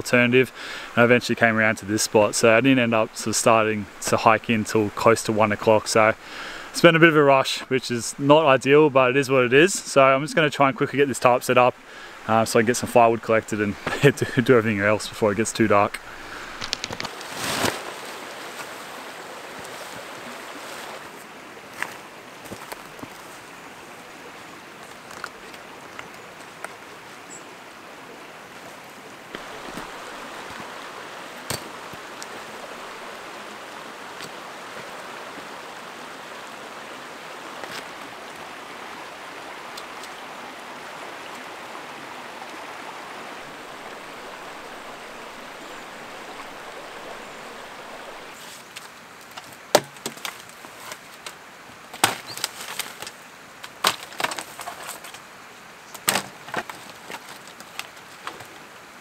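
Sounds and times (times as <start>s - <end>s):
river flowing over rocks: 0.0s - 59.0s
dead branches snapping: 16.5s - 17.8s, 48.8s - 55.2s, 56.0s - 58.5s.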